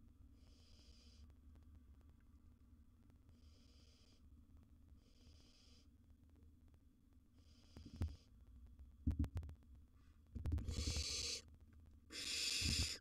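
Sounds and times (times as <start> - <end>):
owls hissing: 10.6 - 11.4, 12.1 - 13.0.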